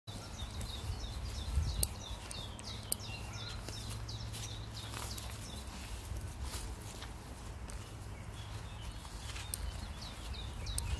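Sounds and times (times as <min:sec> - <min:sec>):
small bird chirping: 0:00.1 - 0:06.0, 0:07.7 - 0:10.9
footsteps: 0:00.1 - 0:10.9
wind rumble on microphone: 0:00.1 - 0:10.9.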